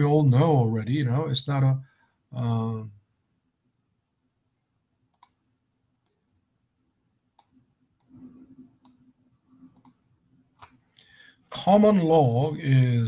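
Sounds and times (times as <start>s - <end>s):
computer mouse clicks: 5.1s - 5.4s, 7.4s - 10.0s.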